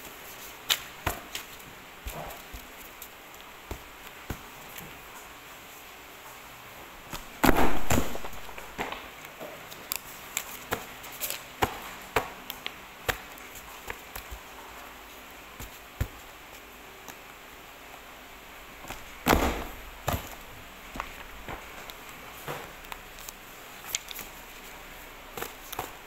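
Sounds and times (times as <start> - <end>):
paper punch crunching thud: 7.4 - 8.9, 18.9 - 20.4.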